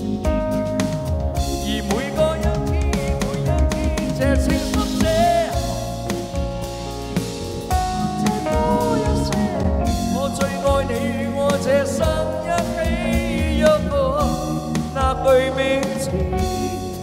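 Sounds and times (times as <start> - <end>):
instrumental accompaniment with drums: 0.0 - 17.0
person singing pop song: 1.4 - 17.0.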